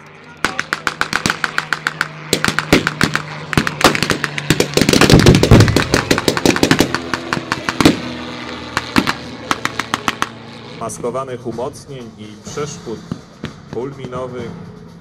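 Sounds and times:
propeller aircraft engine: 0.0 - 15.0
rapid gunfire: 0.4 - 10.4.

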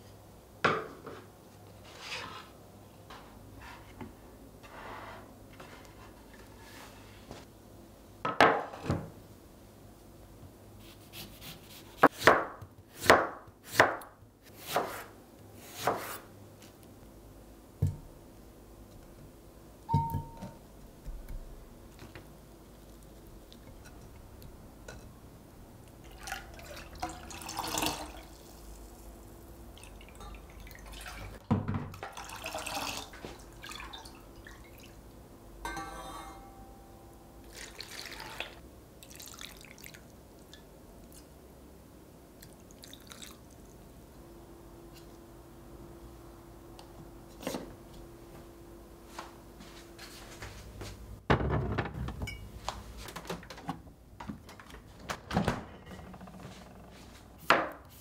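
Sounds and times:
knife chopping on cutting board: 11.1 - 15.1, 15.7 - 16.2
quiet background music: 35.6 - 38.1.

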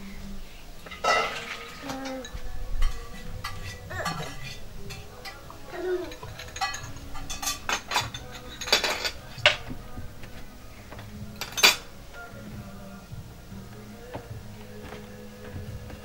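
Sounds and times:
dishes clinking: 0.8 - 12.3.

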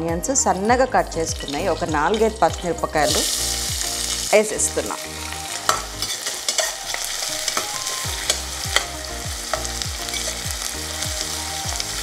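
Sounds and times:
metal spatula scraping pot: 1.1 - 4.2, 4.8 - 10.5
onions sizzling in hot oil: 1.1 - 12.0.

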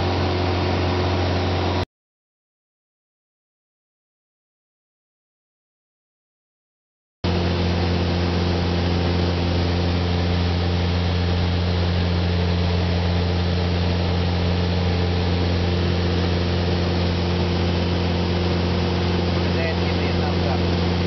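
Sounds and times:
light aircraft engine droning: 0.0 - 1.8, 7.3 - 21.0.

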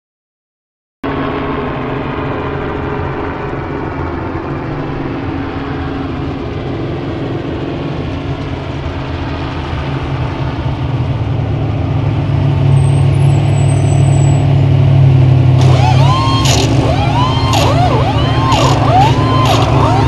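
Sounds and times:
truck engine running: 1.0 - 20.0.

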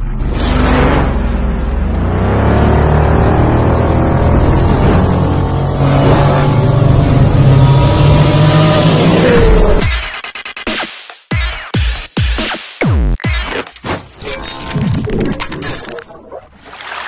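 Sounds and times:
sci-fi motorcycle engine revving: 0.0 - 9.8.

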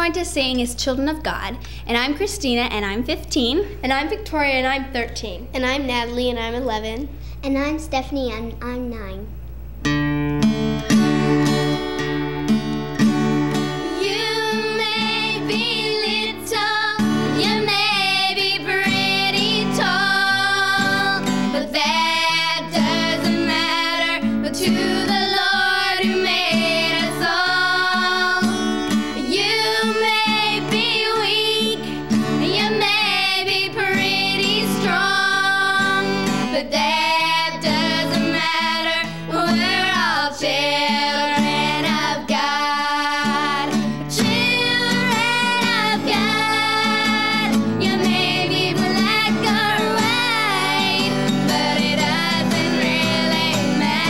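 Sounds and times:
acoustic guitar: 0.0 - 54.0
girls singing together: 13.5 - 54.0.

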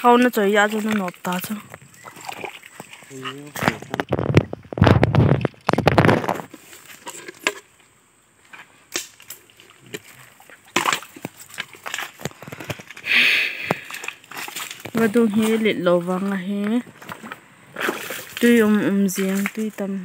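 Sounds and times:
small water splashes: 0.0 - 7.6, 8.9 - 15.6, 17.0 - 19.8
stones knocking: 3.6 - 7.7, 10.7 - 13.0, 13.6 - 19.8.

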